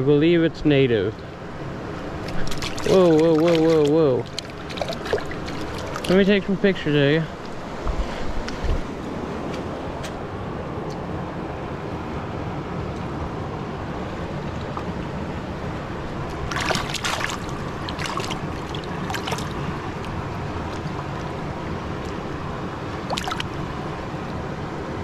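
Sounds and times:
river water flowing over rocks: 1.6s - 6.7s, 13.8s - 24.5s
water splashing: 2.0s - 6.6s, 14.0s - 15.2s, 15.8s - 24.3s.

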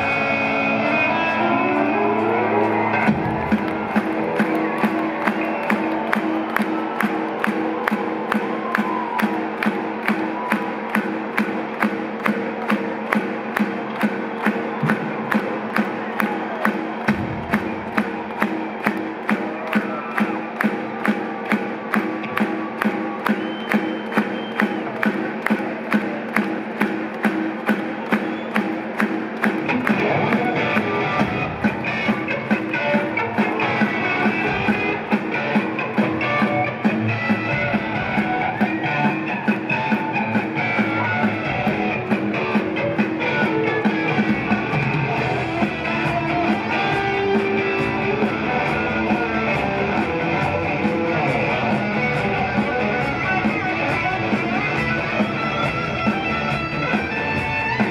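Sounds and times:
loud electric guitar: 0.0s - 9.2s, 29.4s - 57.9s
steady drum beat: 2.7s - 57.9s.

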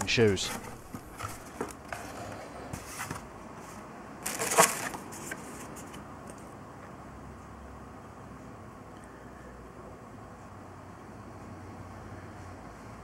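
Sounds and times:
paper and cardboard rustling: 0.0s - 6.0s.

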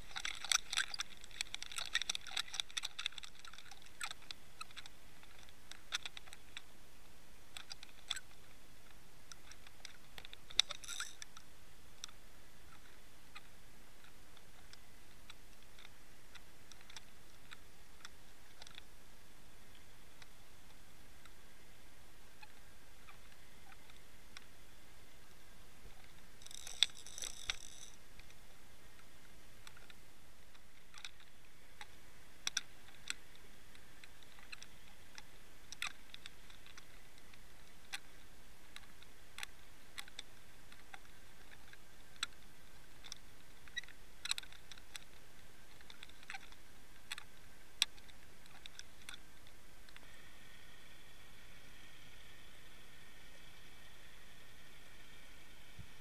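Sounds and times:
sharp clicks and ticks: 0.0s - 6.7s, 7.5s - 18.9s, 26.0s - 28.4s.

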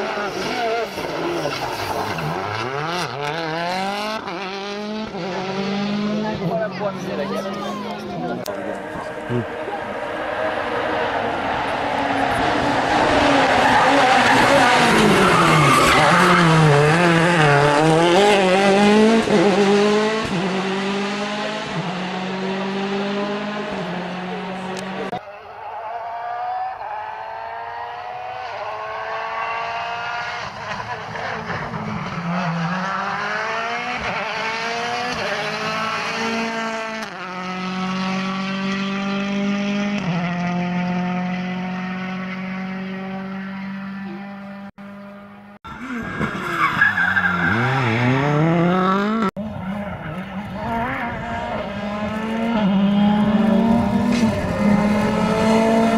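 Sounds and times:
distant rally car accelerating: 0.0s - 55.9s
rally car engine revving: 0.0s - 55.9s.

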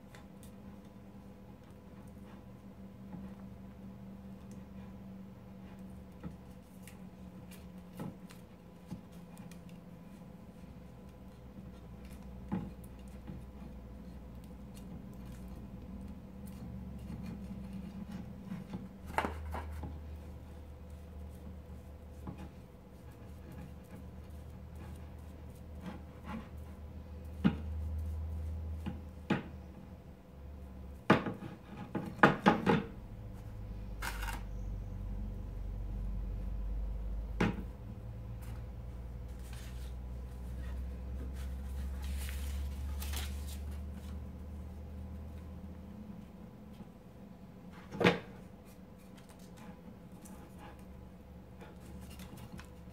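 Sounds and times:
steady low hum: 0.0s - 52.9s.

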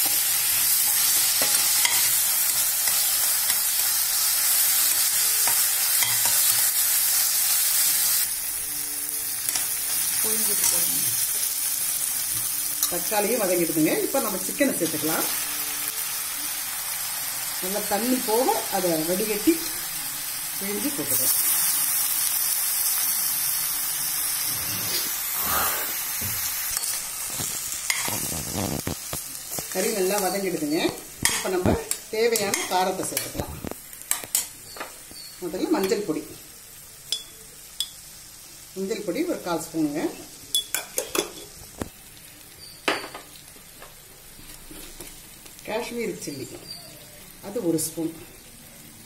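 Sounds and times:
chicken sizzling in hot oil: 0.0s - 49.0s
metal utensils clinking on pot: 31.2s - 33.4s, 40.5s - 41.5s.

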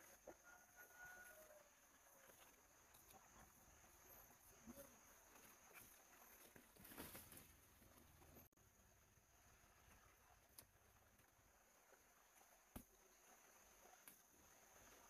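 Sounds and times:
leaves and branches rustling: 4.4s - 8.4s.

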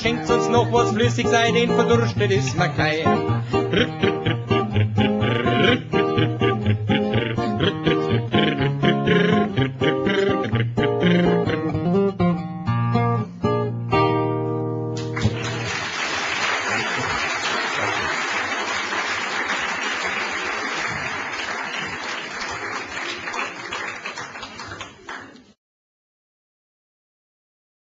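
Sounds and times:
audience applause: 15.0s - 25.5s.

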